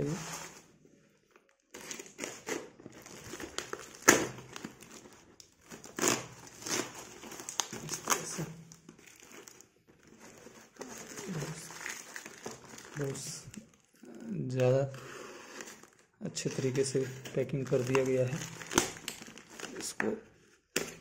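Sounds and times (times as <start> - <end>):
packing tape and cardboard crinkling: 1.3 - 21.0.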